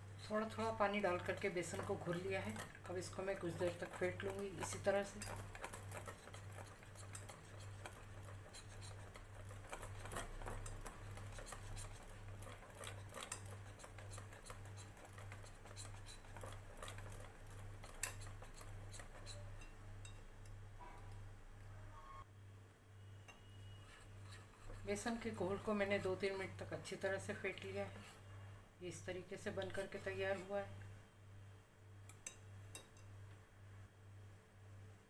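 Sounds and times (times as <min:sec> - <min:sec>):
whisk clicking against glass bowl: 0:01.0 - 0:20.2.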